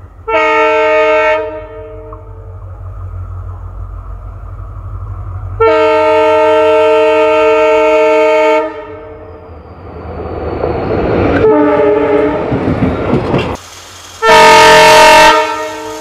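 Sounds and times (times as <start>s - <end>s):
approaching train rumble: 0.0s - 16.0s
train horn blast: 0.2s - 2.6s, 5.6s - 9.4s, 11.4s - 12.5s, 14.2s - 16.0s.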